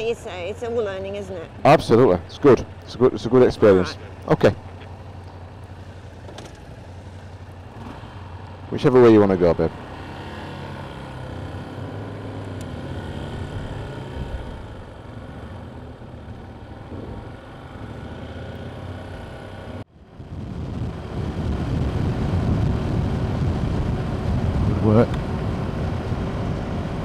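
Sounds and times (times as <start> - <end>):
motorcycle engine running: 0.0 - 27.0
road noise: 0.0 - 27.0
wind noise: 20.0 - 27.0.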